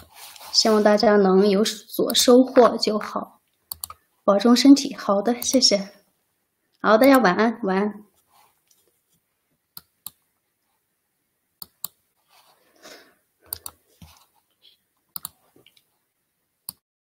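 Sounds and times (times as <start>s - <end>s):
computer mouse clicking: 3.5s - 4.0s, 5.4s - 5.6s, 9.8s - 10.2s, 11.6s - 12.0s, 13.5s - 14.3s, 15.1s - 15.9s.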